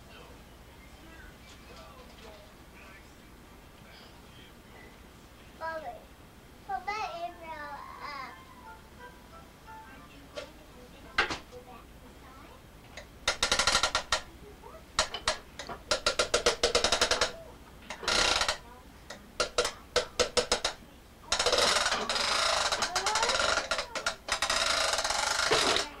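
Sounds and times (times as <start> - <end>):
buzzing rasping: 12.9 - 14.3, 14.9 - 26.0
plastic toys clicking and rattling: 13.0 - 14.3, 15.0 - 18.6, 19.4 - 26.0.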